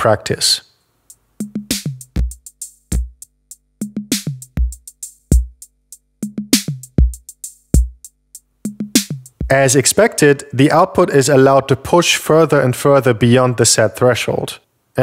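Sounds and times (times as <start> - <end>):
drum-machine beat: 1.0 - 9.6.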